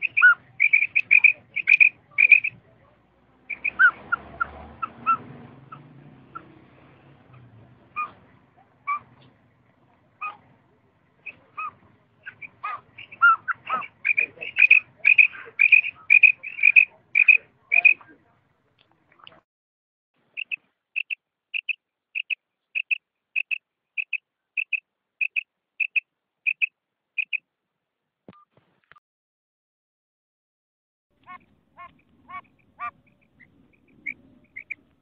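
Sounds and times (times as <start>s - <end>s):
quail calling: 0.0s - 6.6s, 7.3s - 9.3s, 10.2s - 10.5s, 11.2s - 18.2s, 20.4s - 27.4s, 31.2s - 35.0s.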